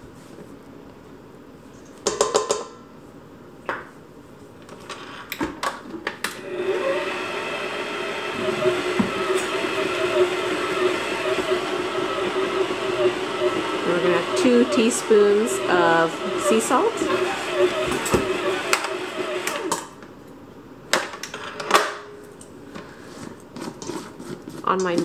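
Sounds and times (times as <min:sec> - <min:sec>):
stand mixer motor hum: 0:06.4 - 0:19.8.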